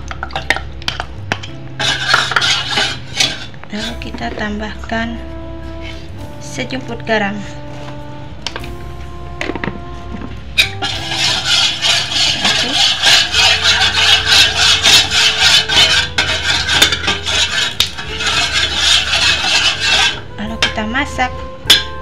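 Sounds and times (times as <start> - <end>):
metal spoon scraping metal pot: 1.8 - 4.1, 10.6 - 20.8.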